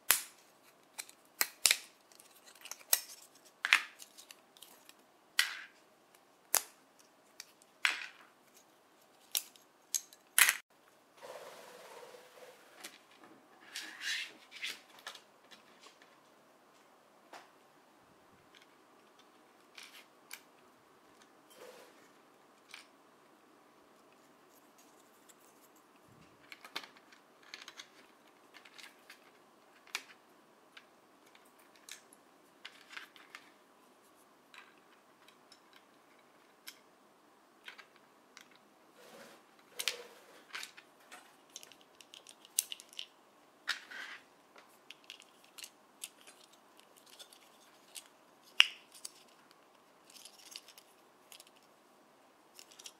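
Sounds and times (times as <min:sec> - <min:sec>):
plastic toy parts clicking: 0:08.5 - 0:10.6, 0:26.4 - 0:30.2, 0:41.4 - 0:43.1, 0:44.9 - 0:51.7, 0:52.5 - 0:52.9.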